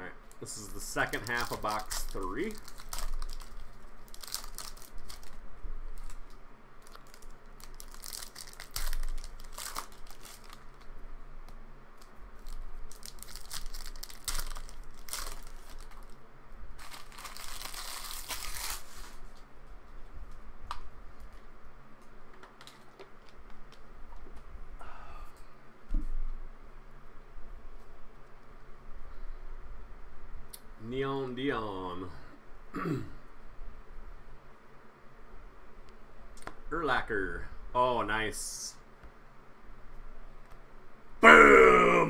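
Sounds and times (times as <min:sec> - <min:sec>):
plastic wrappers tearing and crinkling: 0:00.3 - 0:10.9, 0:12.0 - 0:16.2, 0:16.8 - 0:19.4.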